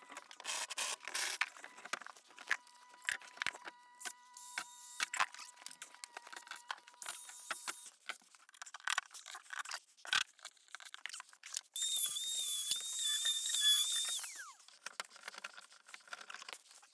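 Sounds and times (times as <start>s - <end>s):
spiral saw whining: 11.8s - 14.6s.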